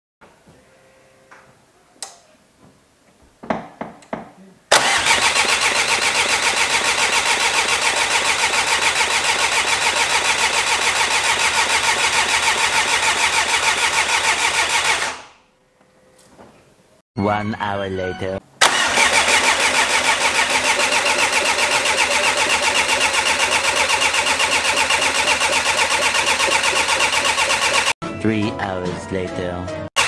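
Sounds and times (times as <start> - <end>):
diesel engine starting and idling: 4.7 - 15.3, 18.6 - 28.0.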